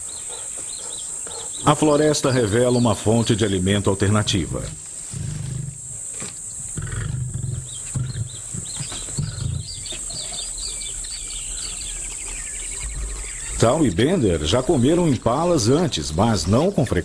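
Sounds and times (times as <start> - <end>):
birds chirping: 0.0 - 17.0
high insect buzz: 4.3 - 16.0
low animal grunts: 5.1 - 6.0, 6.8 - 14.5.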